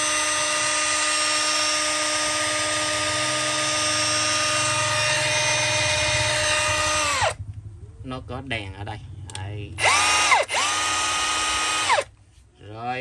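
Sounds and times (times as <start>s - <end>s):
rotary hammer motor whine: 0.0s - 7.4s, 9.3s - 12.1s.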